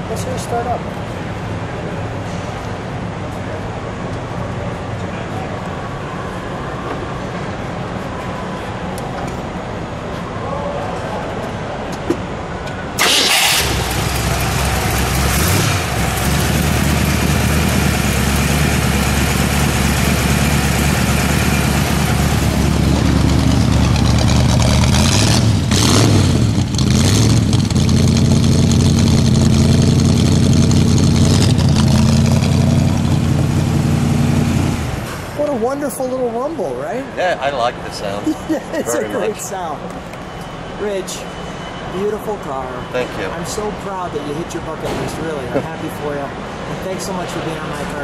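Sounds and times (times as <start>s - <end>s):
car engine starting and idling: 13.0s - 35.4s.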